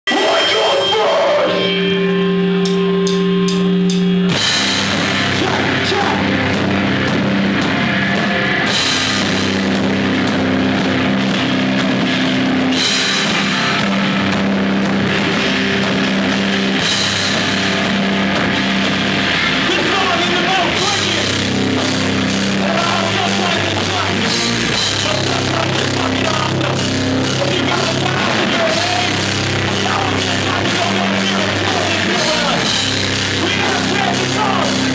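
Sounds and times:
vocals: 0.0s - 2.0s, 5.1s - 6.6s, 19.5s - 34.9s
heavy metal band playing: 0.0s - 34.9s.

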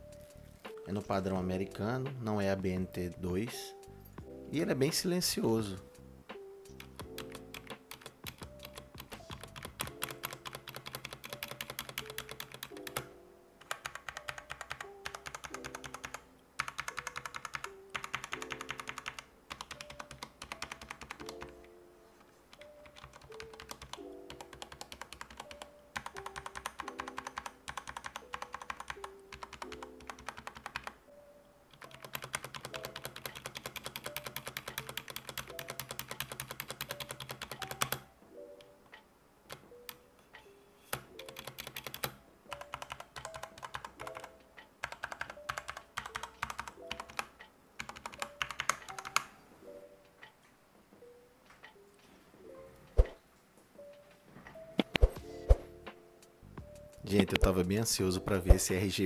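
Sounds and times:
fast typing on mechanical keyboard: 6.8s - 21.5s, 22.5s - 31.0s, 31.7s - 38.1s, 40.9s - 49.3s.

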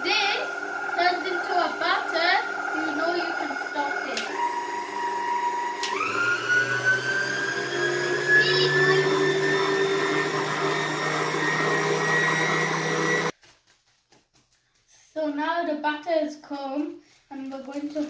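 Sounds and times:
stand mixer motor whine: 0.0s - 13.3s.

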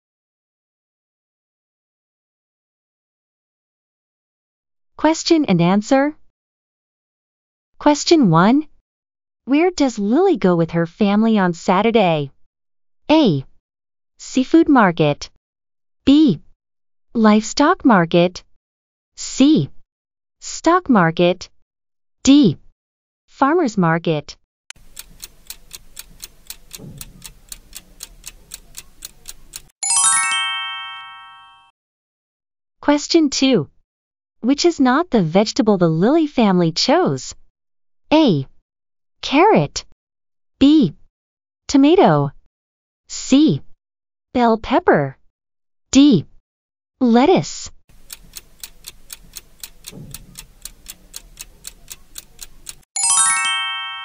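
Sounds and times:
countdown timer ticking: 24.7s - 31.7s, 47.9s - 54.0s
bright bell-like chime: 29.8s - 31.7s, 53.0s - 54.0s.

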